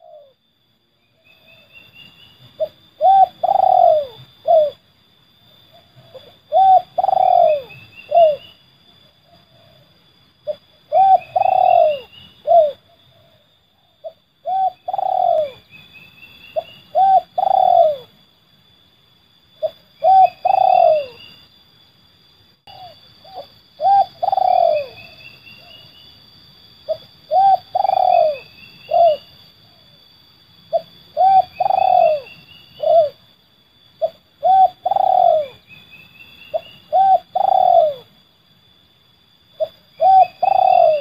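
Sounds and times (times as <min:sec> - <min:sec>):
dove cooing: 0:00.0 - 0:00.4, 0:02.5 - 0:04.8, 0:05.7 - 0:08.6, 0:09.2 - 0:15.7, 0:16.5 - 0:18.2, 0:19.6 - 0:21.4, 0:22.6 - 0:25.9, 0:26.8 - 0:29.9, 0:30.7 - 0:33.2, 0:34.0 - 0:35.8, 0:36.5 - 0:38.2, 0:39.6 - 0:41.0.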